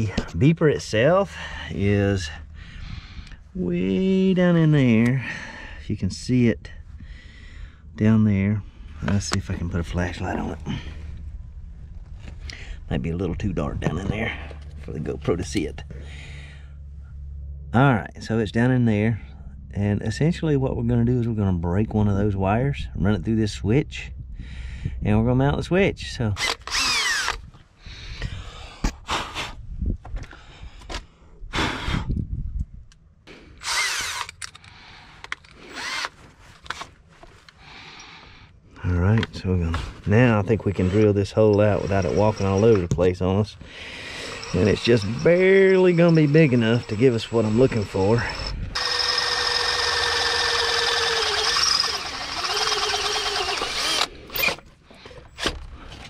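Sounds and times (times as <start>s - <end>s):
cordless drill whining: 26.4s - 27.4s, 33.6s - 34.8s, 35.6s - 36.2s, 40.8s - 42.9s, 43.9s - 55.7s.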